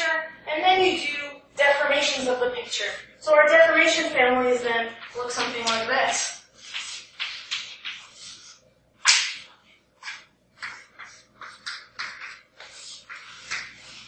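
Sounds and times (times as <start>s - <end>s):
chalk scratching on blackboard: 10.0s - 14.0s.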